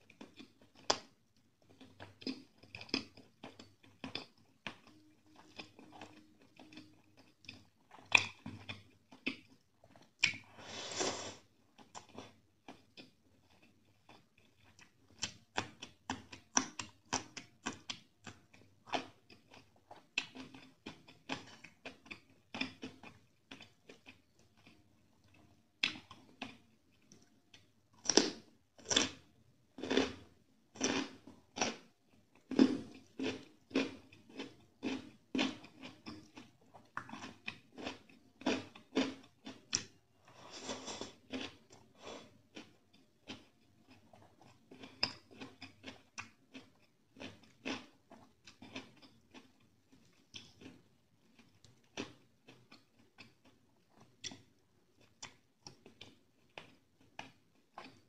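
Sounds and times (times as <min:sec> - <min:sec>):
wet chewing sounds: 0:00.1 - 0:10.5, 0:30.8 - 0:58.0.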